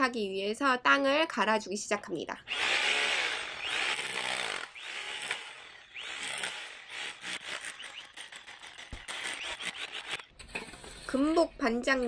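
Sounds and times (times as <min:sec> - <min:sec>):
electric drill revving: 0:02.5 - 0:10.3.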